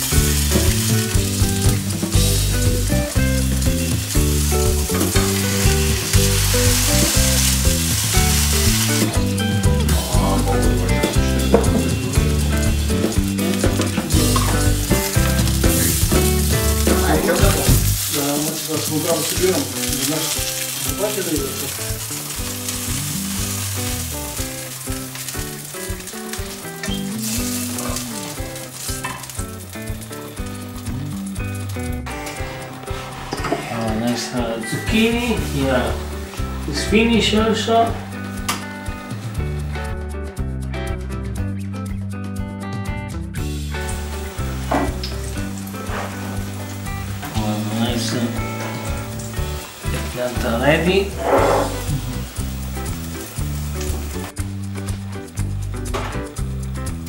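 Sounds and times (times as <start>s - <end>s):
vegetables sizzling in a frying pan: 0.0s - 40.0s, 43.4s - 57.0s
background music: 0.0s - 57.0s
spatula and tongs scraping pan: 32.2s - 36.1s, 51.0s - 51.9s.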